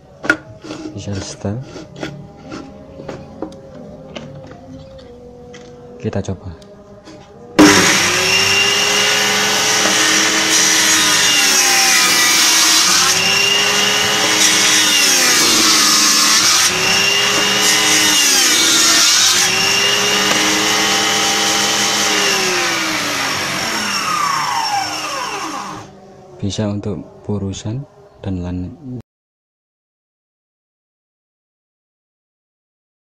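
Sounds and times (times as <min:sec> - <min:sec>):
circular saw running: 0:07.6 - 0:25.9.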